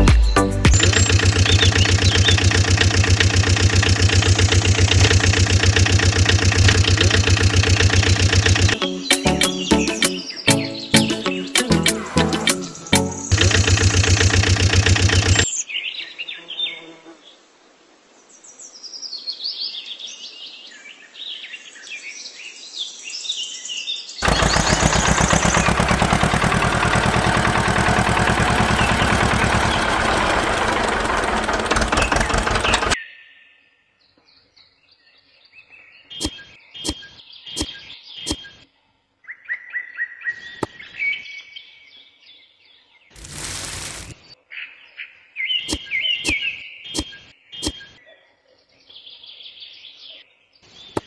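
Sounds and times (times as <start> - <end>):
birds chirping: 0.0 - 15.7, 24.2 - 33.0
fast-pulsing engine running: 0.7 - 8.8, 12.2 - 15.5, 24.2 - 33.0
sharp clicks: 0.7 - 8.8, 12.5 - 15.5, 24.2 - 33.0.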